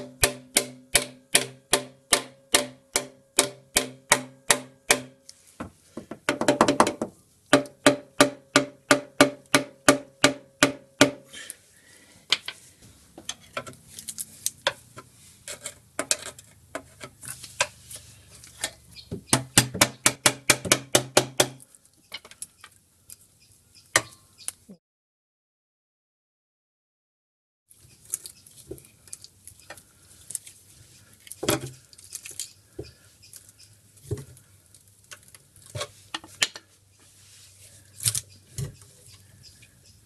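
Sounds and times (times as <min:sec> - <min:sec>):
mallet tapping steel oil pan: 0:00.0 - 0:05.2.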